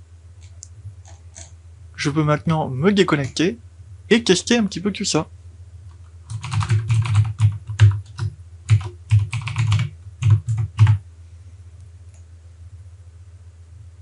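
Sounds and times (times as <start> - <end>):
typing on a keyboard: 6.3 - 11.0.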